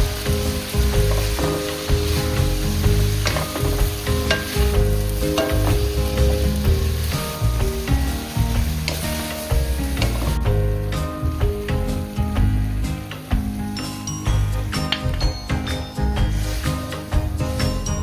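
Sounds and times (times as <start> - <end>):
food sizzling in a wok: 0.0 - 18.0
spatula scraping and tapping pan: 1.0 - 6.3, 8.6 - 10.4.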